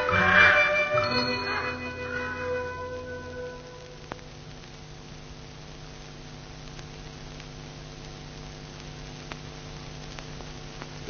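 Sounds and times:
low hum: 0.0s - 7.4s
film soundtrack hiss: 0.0s - 11.0s
faint clicks: 8.8s - 11.0s.

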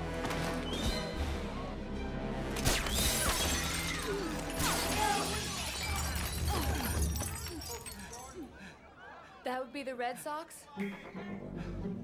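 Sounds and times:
tense orchestral film music: 0.0s - 5.1s
glass breaking: 2.6s - 8.5s.

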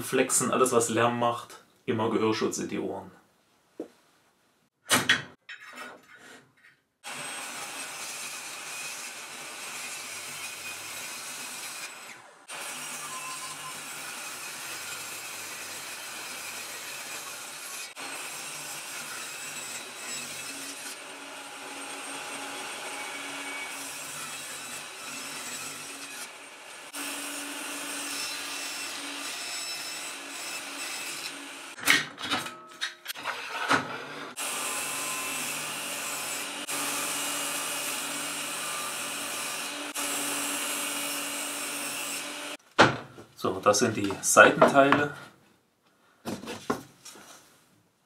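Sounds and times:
table saw ripping plywood: 33.1s - 42.2s.

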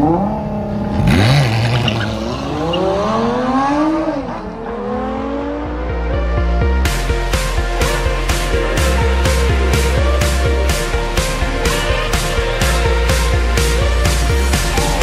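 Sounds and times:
sports car engine accelerating: 0.0s - 6.4s
background music with steady beat: 4.8s - 15.0s.

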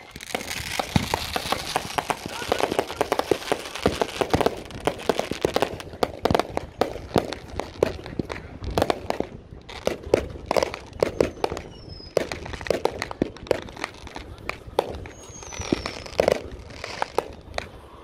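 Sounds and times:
falling firework whistle: 0.0s - 5.8s, 11.0s - 12.4s, 15.0s - 17.7s
fireworks bangs and pops: 0.0s - 17.9s.

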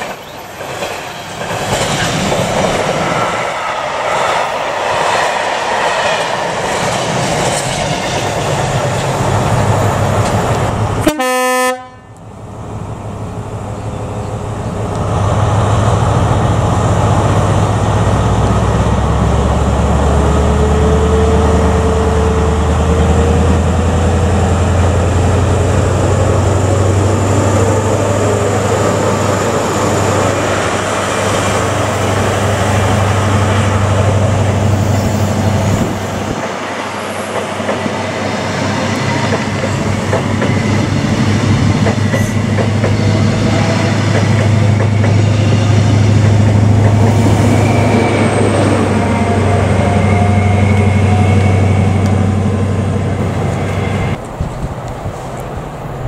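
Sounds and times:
diesel train engine drone: 0.0s - 56.0s
freight train passing: 0.0s - 56.0s
train horn note: 11.0s - 12.2s.

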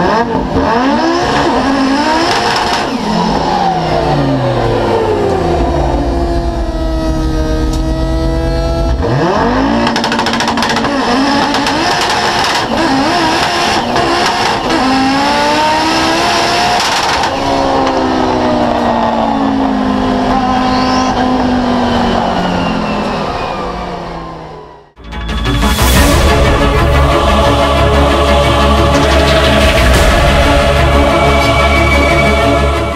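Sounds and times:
engine crackles: 0.0s - 24.9s
race car engine revving: 0.0s - 25.0s, 25.6s - 32.9s.

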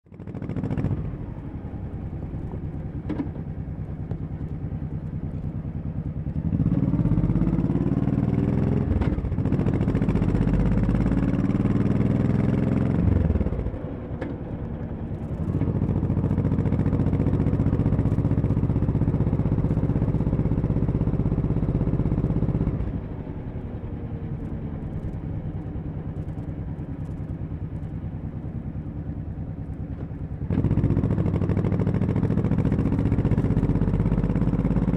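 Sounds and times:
motorcycle engine running: 0.1s - 34.9s.

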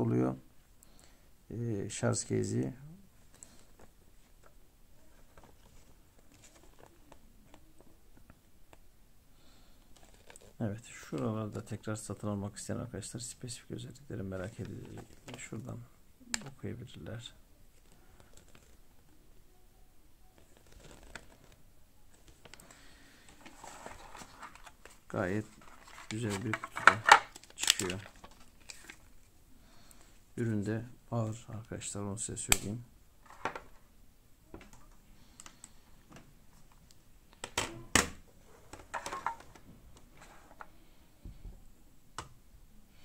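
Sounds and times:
paper rustling: 3.3s - 7.6s, 10.0s - 10.6s, 17.8s - 18.8s, 20.4s - 29.3s.

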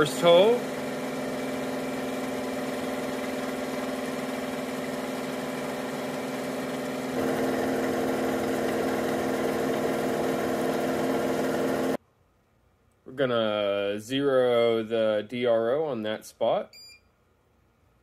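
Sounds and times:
milling machine motor hum: 0.0s - 12.0s.

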